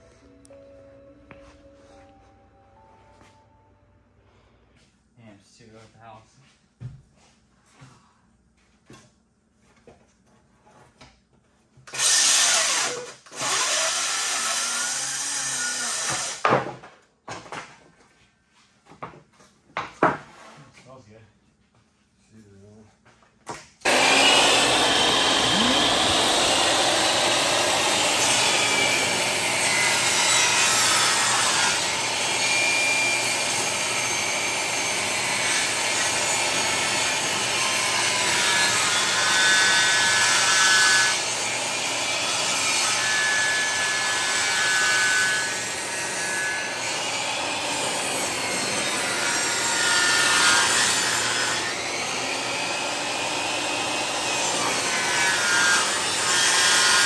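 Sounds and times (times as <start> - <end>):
table saw cutting wood: 11.9 - 16.5, 23.8 - 57.0.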